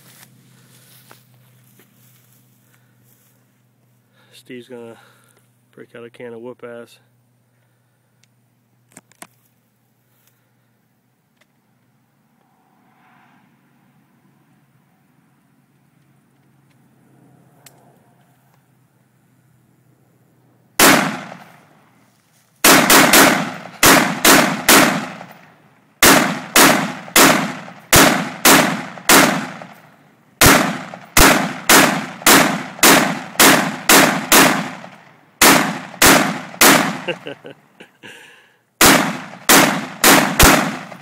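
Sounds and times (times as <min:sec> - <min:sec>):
rifle gunshots: 0:20.8 - 0:21.7, 0:22.6 - 0:29.8, 0:30.4 - 0:37.3, 0:38.8 - 0:41.0.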